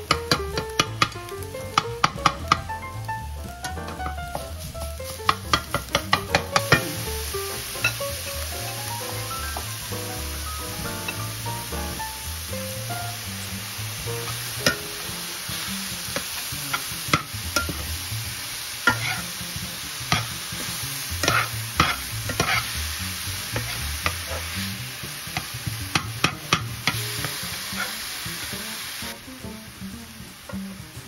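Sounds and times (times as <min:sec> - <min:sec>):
spatula clicking against pan: 0:00.0 - 0:02.6, 0:05.3 - 0:06.9
meat sizzling in a skillet: 0:00.0 - 0:31.0
metal spatula scraping: 0:18.8 - 0:19.3, 0:20.1 - 0:22.8, 0:23.5 - 0:24.6.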